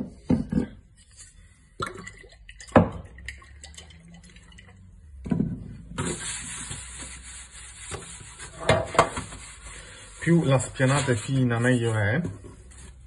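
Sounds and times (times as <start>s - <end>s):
hands rubbing metal tray: 6.0s - 12.2s.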